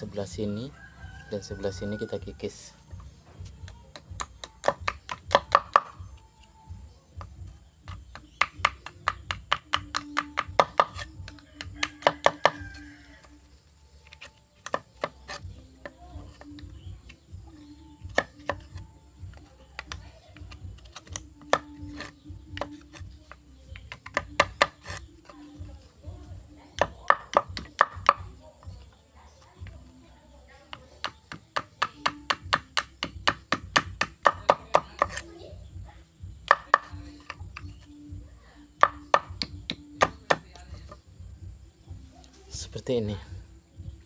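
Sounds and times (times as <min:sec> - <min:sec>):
machete chopping plastic pipe: 0:03.9 - 0:06.0, 0:07.9 - 0:12.6, 0:18.1 - 0:18.8, 0:26.8 - 0:28.2, 0:30.7 - 0:35.2.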